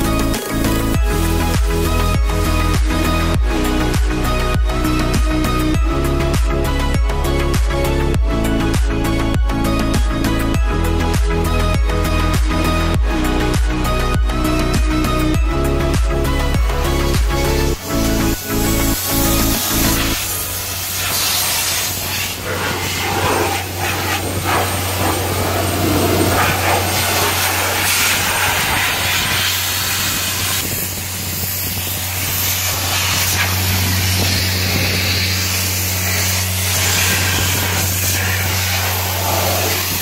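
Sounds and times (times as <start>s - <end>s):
air blower rushing hiss: 0.0s - 5.0s, 16.4s - 40.0s
low engine hum: 0.0s - 40.0s.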